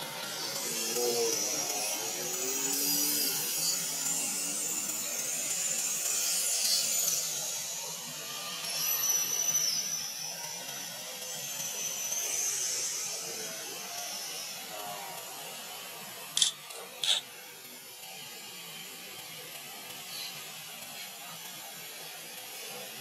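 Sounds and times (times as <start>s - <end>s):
thin whining tone: 0.0s - 23.0s.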